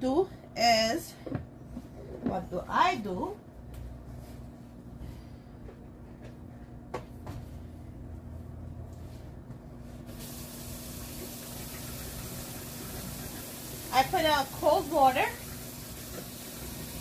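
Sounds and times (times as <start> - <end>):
steady low hum: 0.0 - 17.0
cold water running: 10.1 - 17.0.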